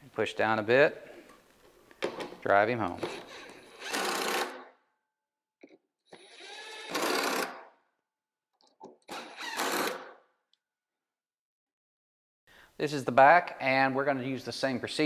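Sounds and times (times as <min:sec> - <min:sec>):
cordless drill driving screws: 0:03.0 - 0:04.7, 0:06.1 - 0:07.7, 0:09.0 - 0:10.2.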